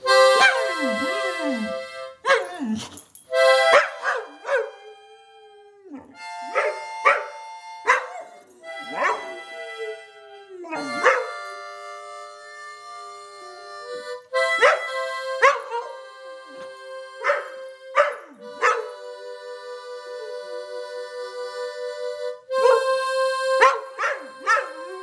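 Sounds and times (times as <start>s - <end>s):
harmonica chords: 0.0s - 2.4s, 3.3s - 25.0s
dog howling: 3.7s - 7.3s, 7.9s - 11.4s.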